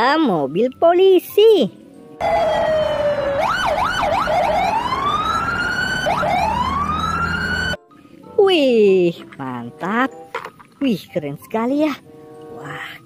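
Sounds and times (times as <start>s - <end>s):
low traffic rumble: 1.8s - 7.8s
police siren yelping and wailing: 2.2s - 7.8s.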